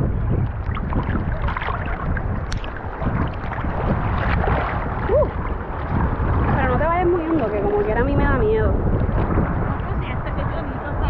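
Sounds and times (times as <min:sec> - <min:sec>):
low rumble: 0:00.0 - 0:11.0
sea water sloshing and splashing: 0:00.0 - 0:11.0.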